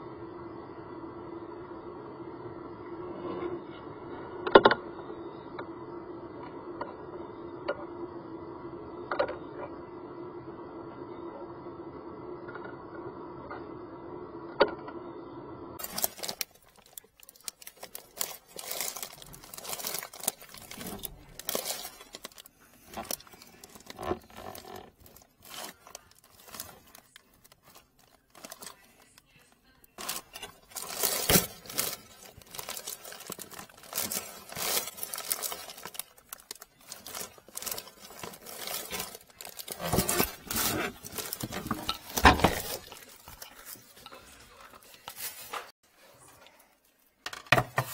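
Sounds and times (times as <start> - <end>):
drain hose rustling and crinkling: 15.8 - 46.8
pipe clattering: 30.0 - 45.7.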